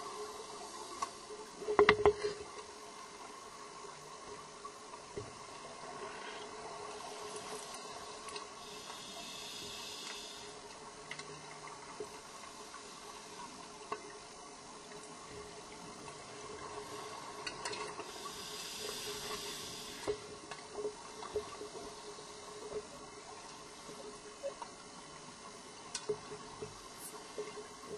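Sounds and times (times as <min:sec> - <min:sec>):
diving gear clicks and knocks: 0:01.7 - 0:02.2.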